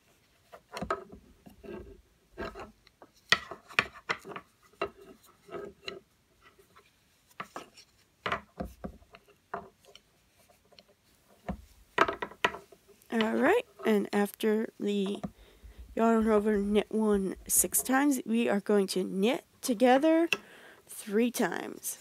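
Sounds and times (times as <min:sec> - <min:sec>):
knitting needles clicking: 0:12.0 - 0:18.1.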